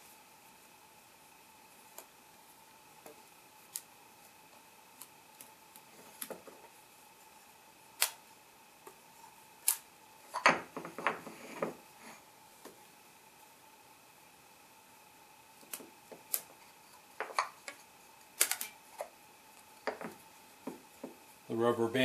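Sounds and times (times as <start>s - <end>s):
rubber bands snapping: 8.0s - 8.2s, 18.4s - 18.8s
mold knocking and scraping on tile: 10.4s - 11.8s, 17.2s - 17.8s, 19.8s - 21.2s.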